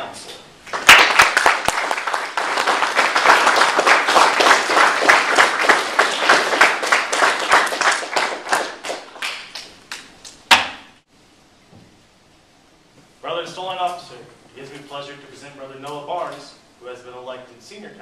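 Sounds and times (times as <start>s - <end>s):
people applauding: 0.7s - 10.4s
loud single clap: 0.7s - 11.0s.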